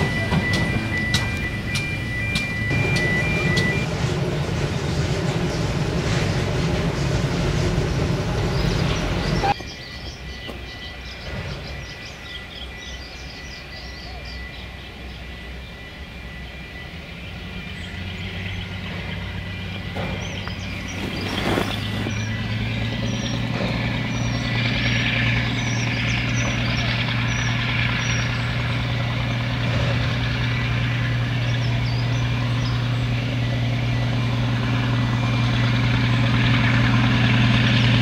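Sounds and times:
diesel locomotive engine hum: 0.0s - 38.0s
steam locomotive rumble: 0.0s - 38.0s
birdsong: 8.3s - 38.0s.

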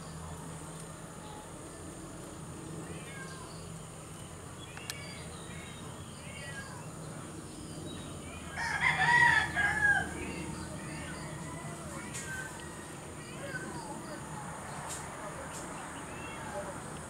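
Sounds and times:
rooster crowing: 8.5s - 13.2s.

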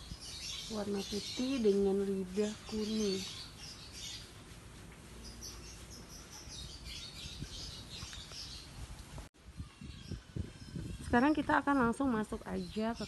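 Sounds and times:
small birds chirping: 0.0s - 13.0s.

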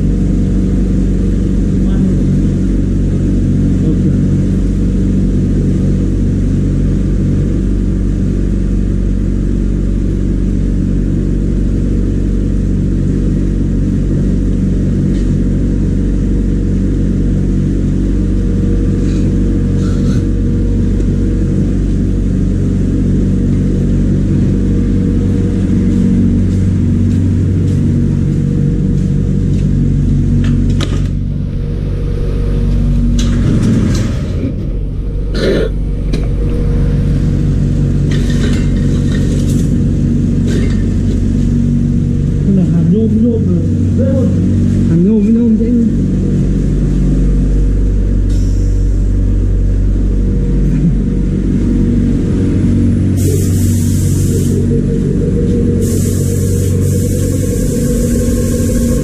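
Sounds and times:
electric motor humming: 49.6s - 59.0s.

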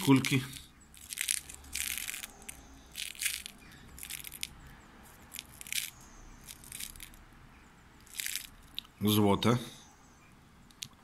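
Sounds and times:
steel balls rattling in bottle: 0.0s - 4.6s, 5.2s - 7.2s, 8.0s - 8.8s.

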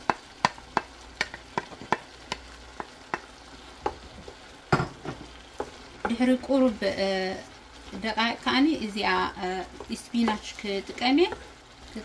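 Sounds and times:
wooden spatula tapping on pan: 0.0s - 6.2s
vegetables sizzling: 0.0s - 12.0s.

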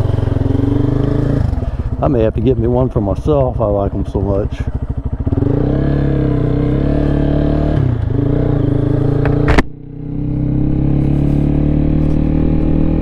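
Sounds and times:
motorcycle engine pulling away: 0.0s - 13.0s
sharp click: 9.2s - 9.8s.

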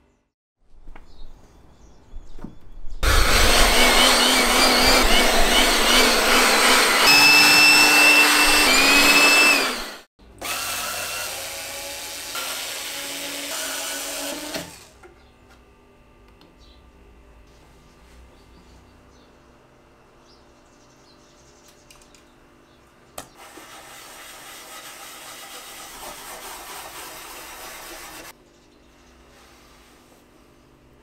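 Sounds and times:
power tool whining on wood: 3.0s - 14.9s.

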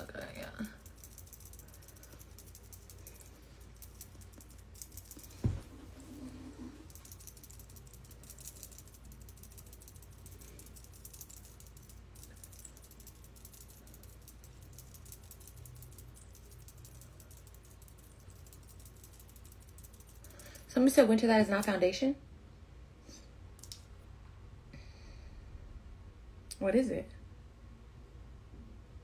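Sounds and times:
dull thump: 5.4s - 5.8s.

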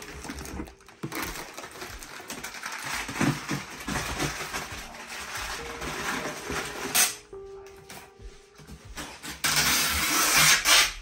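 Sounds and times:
plastic packets crinkling: 0.0s - 7.4s.

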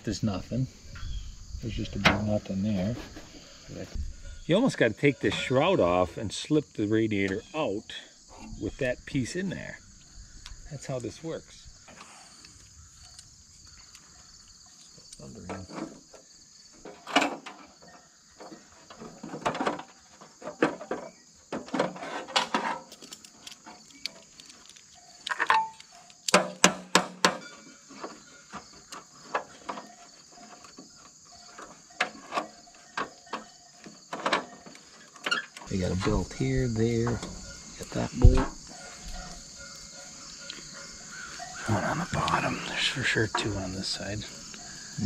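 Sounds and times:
crickets chirring: 0.0s - 45.0s
metallic clanks of hand tools: 21.9s - 28.2s.

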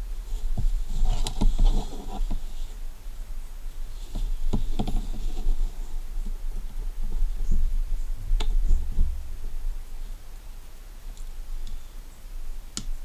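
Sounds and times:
low rubbing of headlamp: 0.2s - 3.0s, 3.8s - 6.4s.

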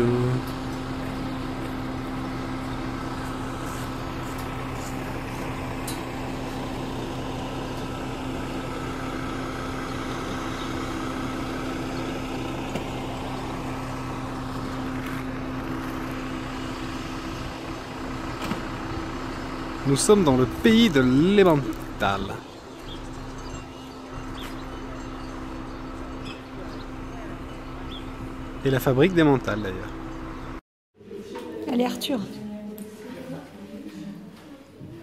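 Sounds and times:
low mechanical hum: 0.0s - 35.0s.

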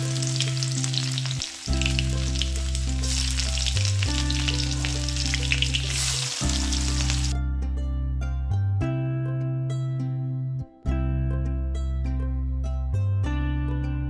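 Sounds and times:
garlic sizzling in hot oil: 0.0s - 7.3s
background music: 0.0s - 14.0s.

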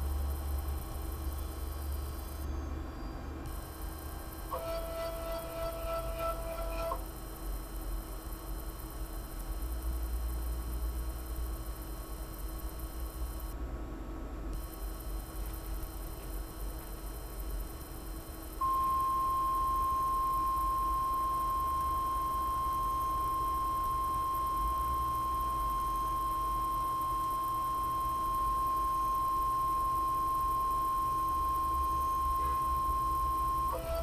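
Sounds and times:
stepper motor whining: 4.4s - 7.1s.

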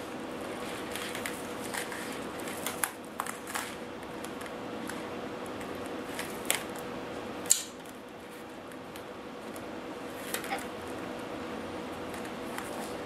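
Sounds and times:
faint steady hum: 0.0s - 13.0s
wires and plastic wrap handled: 0.4s - 6.8s.

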